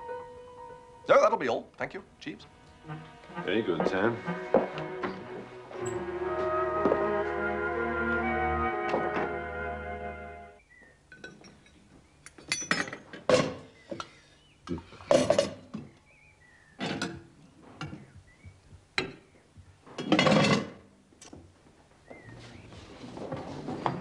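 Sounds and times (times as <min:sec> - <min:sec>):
metal dishes and cutlery clanking: 0:12.4 - 0:13.7, 0:20.0 - 0:20.8.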